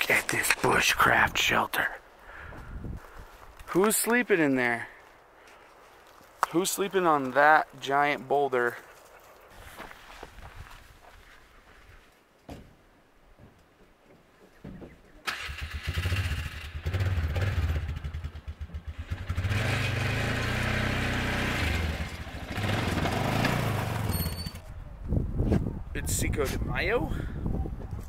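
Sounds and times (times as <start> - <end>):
small engine starting and revving: 15.3 - 24.6.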